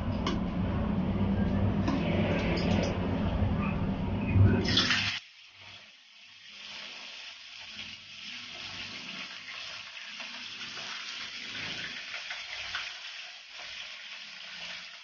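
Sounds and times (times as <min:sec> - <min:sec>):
fish sizzling in hot oil: 0:05.1 - 0:15.0.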